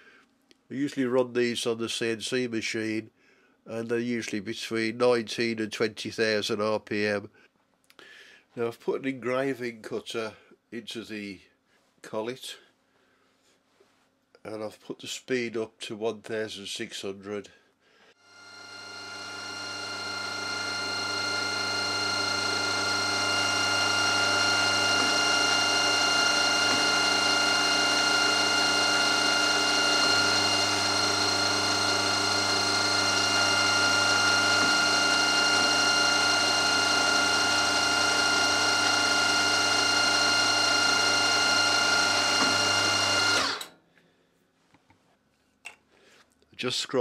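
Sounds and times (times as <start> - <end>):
milling machine whine: 18.2 - 43.7.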